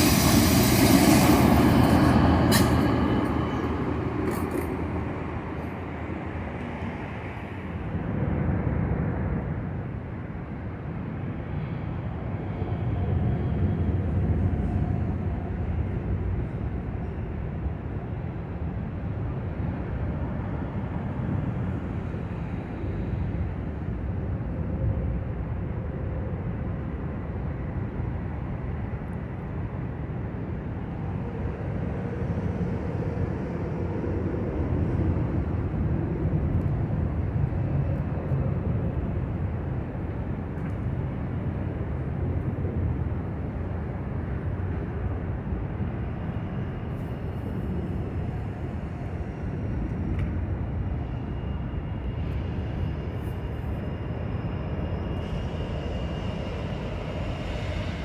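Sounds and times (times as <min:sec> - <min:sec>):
low rumble of distant engines: 0:00.0 - 0:58.0.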